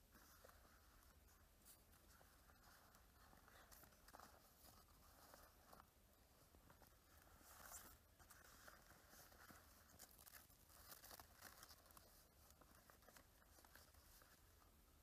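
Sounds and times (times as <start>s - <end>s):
leaf rustling and crinkling: 6.6s - 14.3s.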